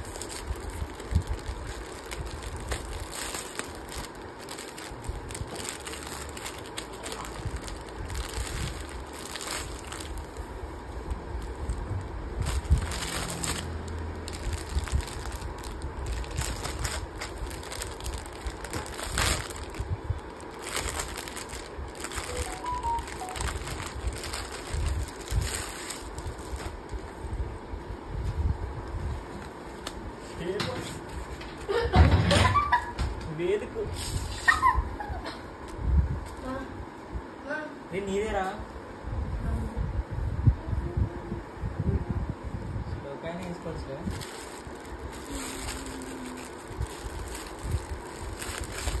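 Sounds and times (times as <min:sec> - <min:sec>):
plastic packaging crinkling: 0:00.0 - 0:27.1, 0:43.5 - 0:49.0.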